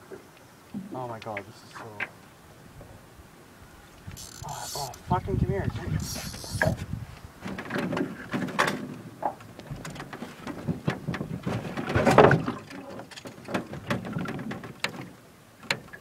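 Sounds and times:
fishing rod and reel handling: 4.1s - 5.0s, 6.0s - 6.8s.

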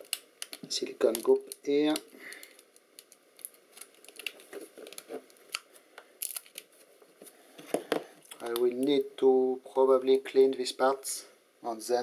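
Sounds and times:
plastic wrap crinkling: 0.0s - 9.0s.

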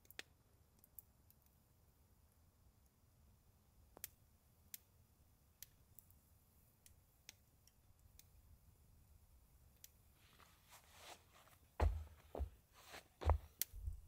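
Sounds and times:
firewood crackling and popping: 0.0s - 3.1s, 3.9s - 8.4s.

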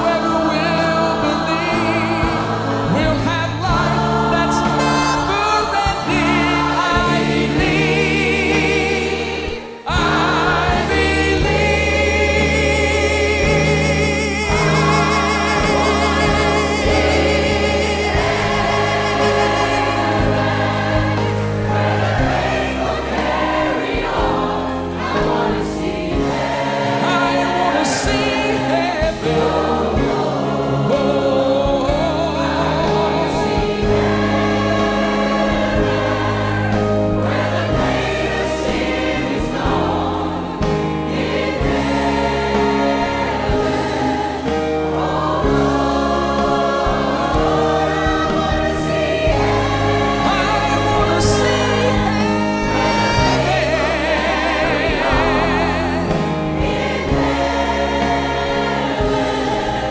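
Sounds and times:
man singing lead vocal: 0.0s - 8.1s, 27.0s - 34.1s, 50.1s - 56.3s
choir singing: 0.0s - 59.9s.

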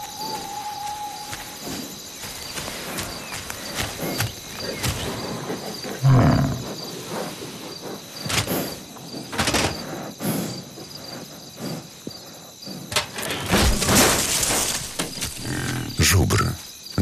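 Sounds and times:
crickets chirping: 0.0s - 17.0s
low animal grunt: 4.0s - 6.8s.

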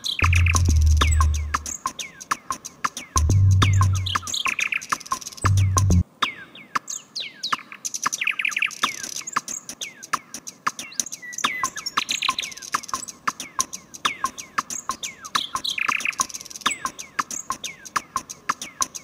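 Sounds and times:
bird chirps and twitters: 0.0s - 19.0s
ambient music: 0.2s - 1.7s.

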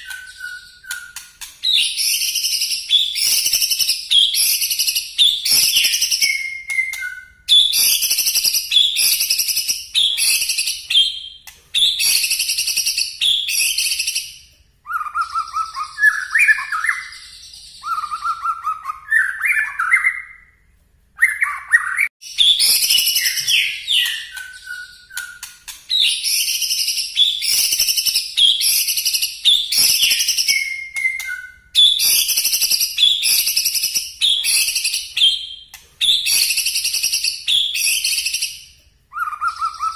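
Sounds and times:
bird singing high rapid notes: 0.0s - 20.6s, 21.2s - 39.9s
bird whistling low phrases: 39.1s - 39.9s.

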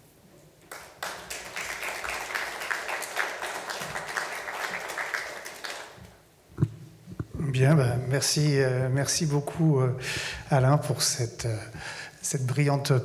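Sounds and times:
audience applauding: 0.7s - 6.2s.

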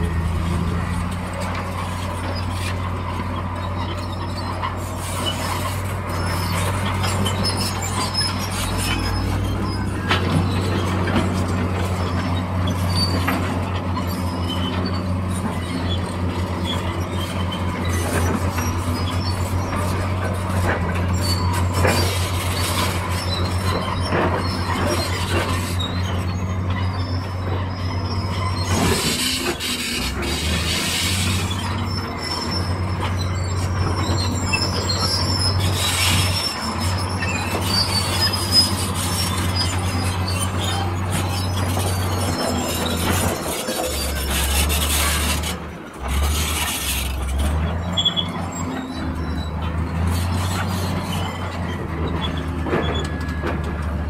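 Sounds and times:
bulldozer diesel engine: 0.0s - 54.0s
metallic squeals of crawler tracks: 0.0s - 54.0s.

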